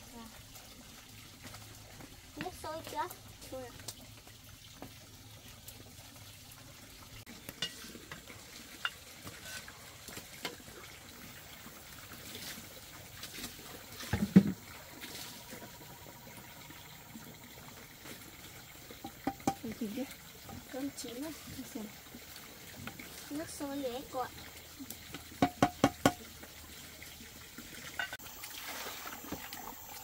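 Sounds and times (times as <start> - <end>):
stick scraping metal pot: 7.4 - 9.8
knock on pot: 14.1 - 14.6, 19.0 - 19.7, 25.4 - 26.2.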